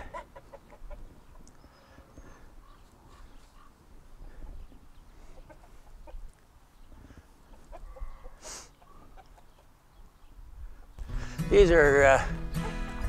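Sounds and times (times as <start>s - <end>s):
chicken drawn-out call: 0.0s - 3.8s, 7.5s - 9.7s
chickens clucking softly: 0.0s - 10.1s.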